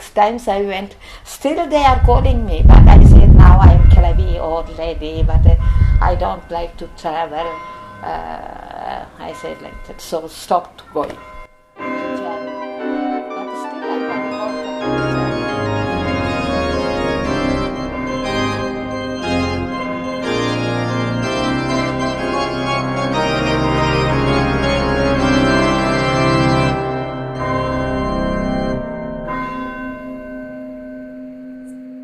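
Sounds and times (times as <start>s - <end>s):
organ music: 11.8s - 30.6s.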